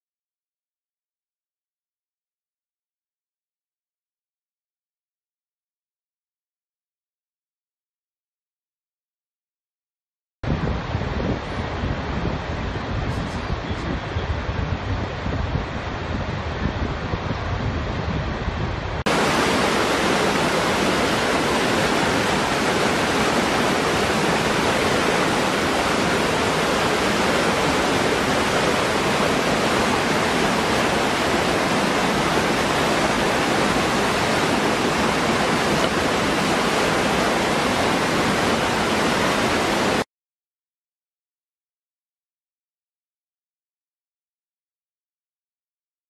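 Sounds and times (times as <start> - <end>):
waterfall splashing into pool: 19.1 - 40.0.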